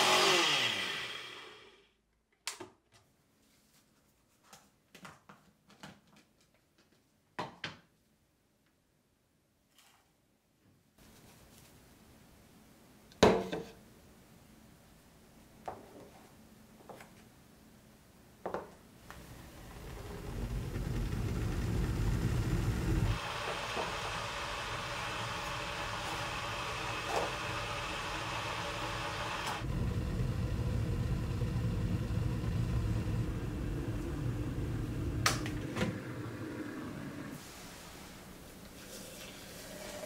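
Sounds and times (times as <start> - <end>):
electric kettle heating water: 19.1 - 37.8, 38.6 - 40.0.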